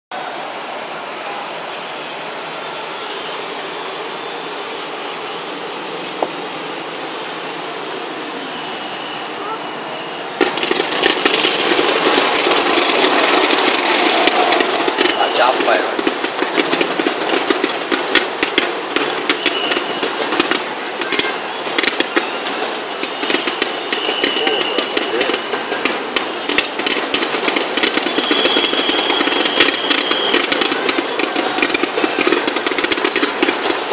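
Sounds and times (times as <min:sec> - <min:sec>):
city background hiss: 0:00.1 - 0:27.8
fireworks crackling and popping: 0:10.4 - 0:33.9.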